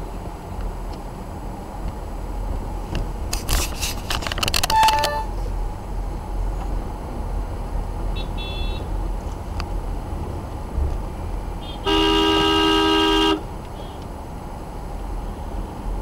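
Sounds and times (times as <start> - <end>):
car and traffic rumble: 0.0 - 16.0
rapid clicks and rattles: 3.3 - 5.1.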